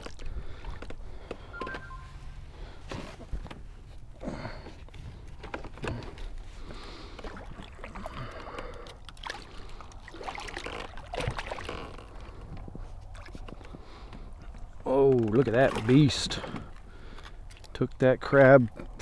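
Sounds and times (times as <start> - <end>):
fish splashing in water: 7.0 - 12.4.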